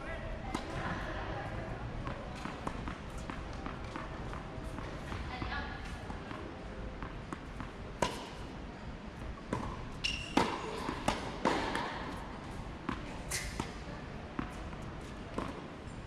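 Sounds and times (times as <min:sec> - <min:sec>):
tennis ball bouncing on hard court: 0:00.5 - 0:00.8, 0:02.0 - 0:08.4, 0:09.2 - 0:15.7
tennis ball struck by rackets: 0:02.0 - 0:05.2, 0:07.0 - 0:08.4, 0:09.4 - 0:12.2.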